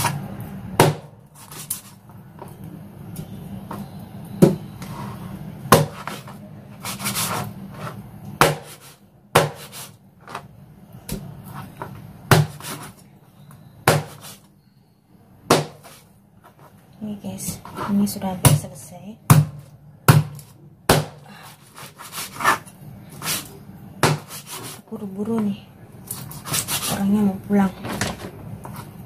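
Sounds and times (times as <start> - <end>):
cleaver chopping on cutting board: 0.8 - 1.7, 5.7 - 6.3, 8.4 - 10.4, 12.3 - 12.9, 13.9 - 14.4, 15.5 - 16.0, 19.3 - 21.2, 24.0 - 24.8
blade slicing and scraping: 21.4 - 23.5.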